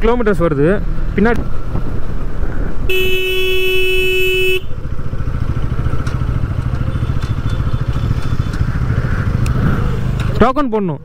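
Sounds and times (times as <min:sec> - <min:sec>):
vehicle horn: 0:02.9 - 0:04.8
motorcycle engine running: 0:02.9 - 0:10.5.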